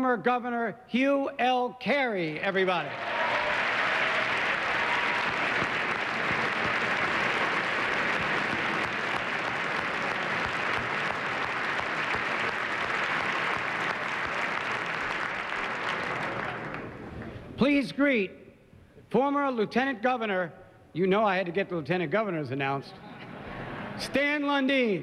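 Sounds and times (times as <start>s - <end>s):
large audience applauding: 2.8s - 17.1s.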